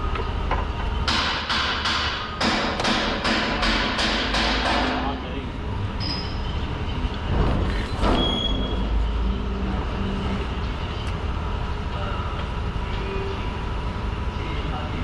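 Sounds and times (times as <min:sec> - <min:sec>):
heavy vehicle rumbling: 0:04.8 - 0:15.0.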